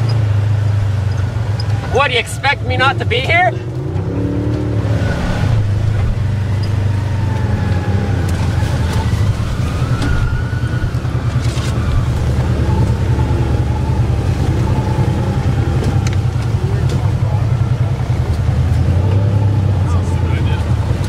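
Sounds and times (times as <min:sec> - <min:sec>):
utility vehicle engines droning: 0:00.0 - 0:21.0.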